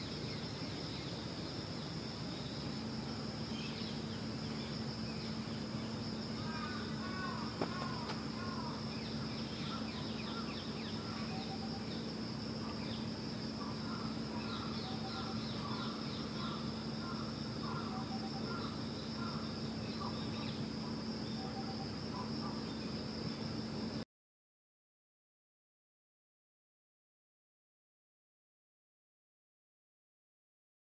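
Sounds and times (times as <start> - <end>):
background hum: 0.0 - 24.0.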